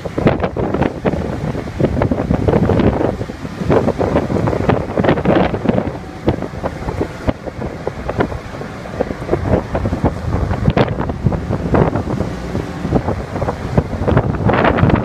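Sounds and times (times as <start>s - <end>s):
rough sea rushing: 0.0s - 15.0s
wind buffeting the microphone: 0.0s - 15.0s.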